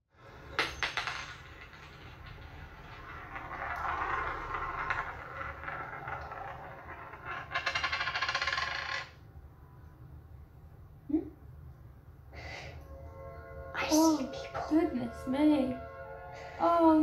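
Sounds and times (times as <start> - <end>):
film soundtrack playing: 12.6 - 17.0.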